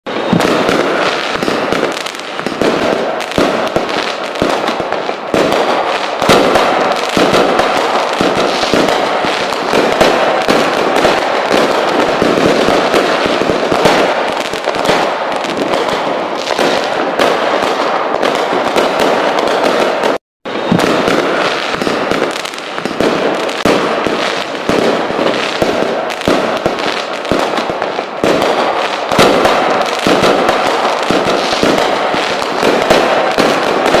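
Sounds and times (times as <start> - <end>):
fireworks crackling and popping: 0.1 - 34.0.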